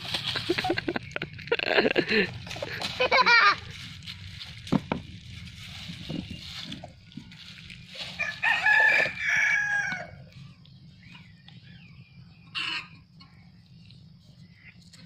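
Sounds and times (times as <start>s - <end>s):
rooster crowing: 8.1s - 10.2s.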